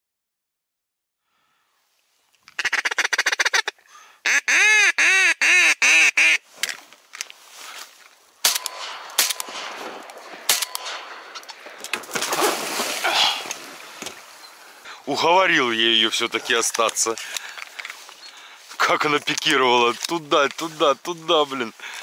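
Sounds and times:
duck quacking: 0:02.6 - 0:06.4
shotgun shots: 0:08.4 - 0:13.0.

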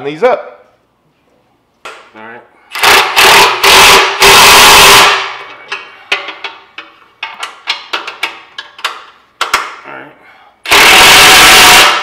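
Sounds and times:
impact driver hammering: 0:02.8 - 0:05.4, 0:10.7 - 0:12.0.

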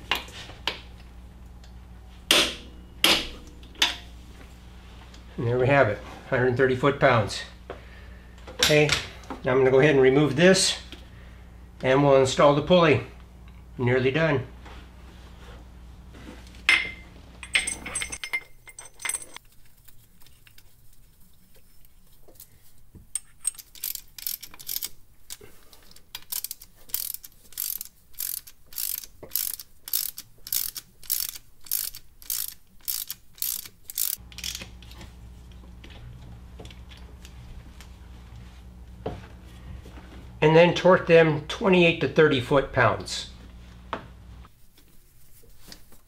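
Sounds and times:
metallic clinks: 0:16.7 - 0:19.4
socket ratchet clicking: 0:23.2 - 0:34.7.

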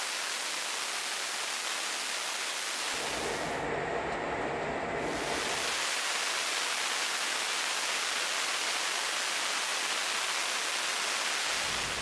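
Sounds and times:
jet engine hissing roar: 0:02.7 - 0:06.0.

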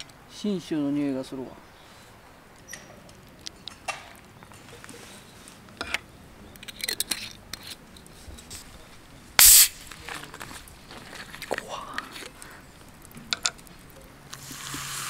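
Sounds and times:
carbonated bottle hissing open: 0:09.4 - 0:09.8, 0:14.3 - 0:15.0
whisky pouring over ice: 0:14.3 - 0:15.0.

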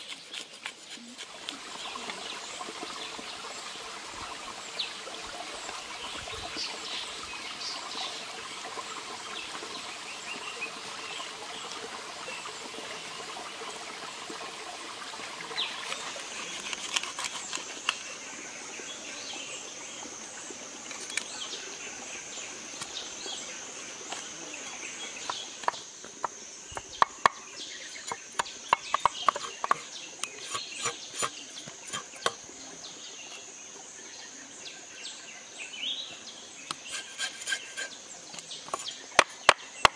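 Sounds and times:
stream running over rocks: 0:00.0 - 0:39.9
knife scraping fish: 0:15.8 - 0:17.7, 0:29.2 - 0:32.4, 0:36.7 - 0:38.8
birds calling: 0:24.6 - 0:32.4.

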